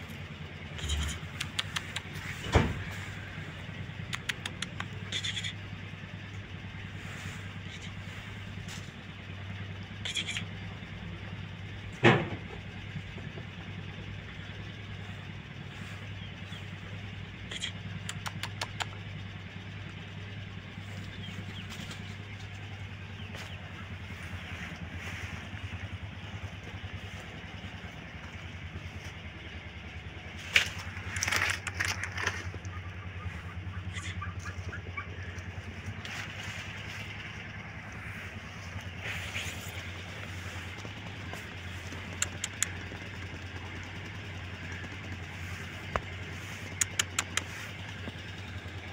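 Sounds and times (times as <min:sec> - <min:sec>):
low engine drone: 0:00.0 - 0:48.9
sharp click: 0:01.3 - 0:02.2, 0:04.0 - 0:05.5, 0:18.0 - 0:19.0, 0:46.8 - 0:47.5
clicks and rustling: 0:30.4 - 0:32.7.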